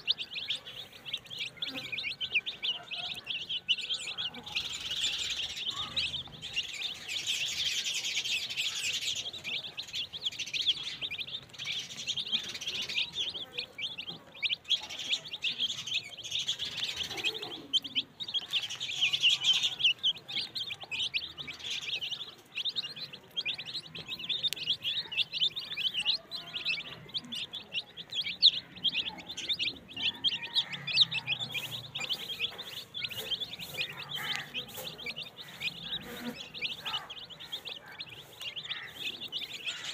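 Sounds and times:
chicks peeping: 0.0s - 39.9s
beaks pecking on plastic plate: 9.6s - 39.9s.

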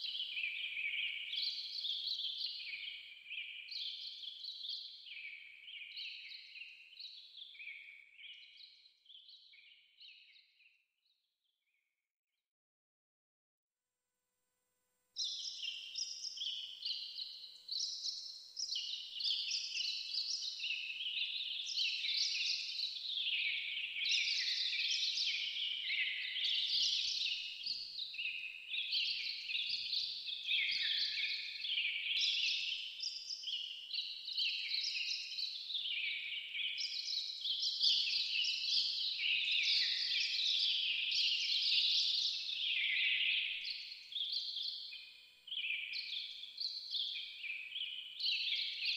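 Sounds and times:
chorus of high-pitched chirping: 15.2s - 44.9s.

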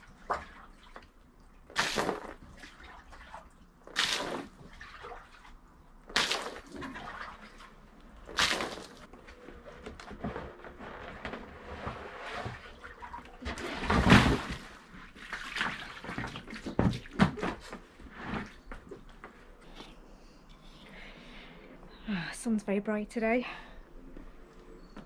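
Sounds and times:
water splashing: 0.0s - 9.1s, 12.3s - 17.5s
water sloshing and dripping: 0.0s - 21.0s.

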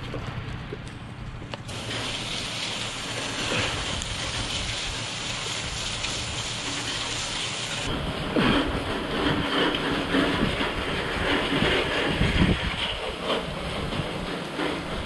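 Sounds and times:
pressure washer engine hum: 0.0s - 15.0s
pressure washer water spray: 1.7s - 7.9s.

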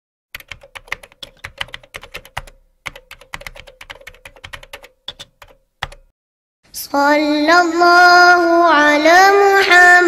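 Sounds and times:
keyboard typing: 0.3s - 6.1s.

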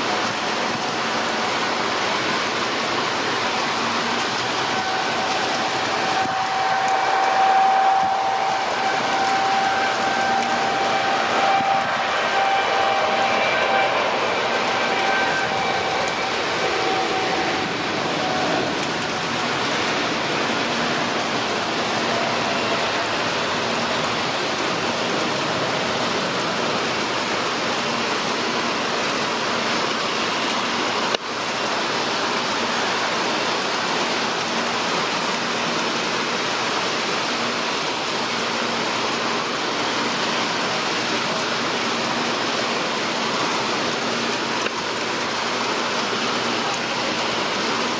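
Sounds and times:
jet engines at takeoff thrust: 0.0s - 47.9s.

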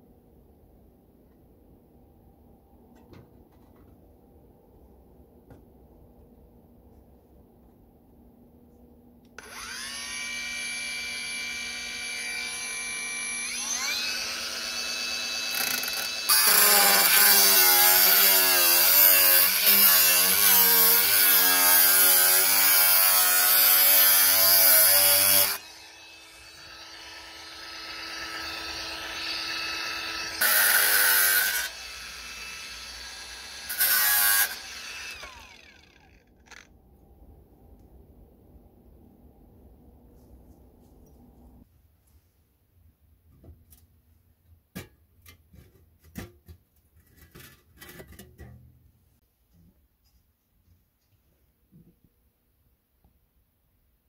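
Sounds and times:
power saw motor whining: 9.4s - 16.6s
power saw cutting: 9.4s - 36.7s.

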